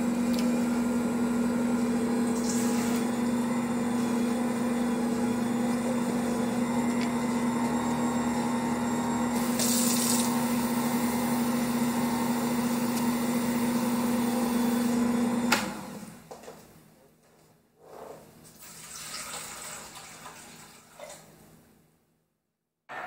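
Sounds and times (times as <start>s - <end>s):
stand mixer motor humming: 0.0s - 16.2s.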